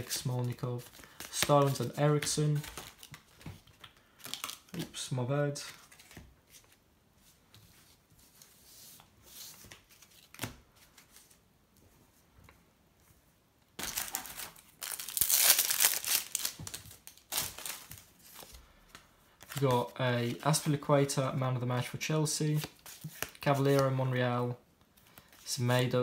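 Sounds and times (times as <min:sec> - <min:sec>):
cards rustling: 0:00.0 - 0:06.8, 0:13.8 - 0:20.9, 0:21.8 - 0:24.0
wrapper tearing and crumpling: 0:13.8 - 0:18.5.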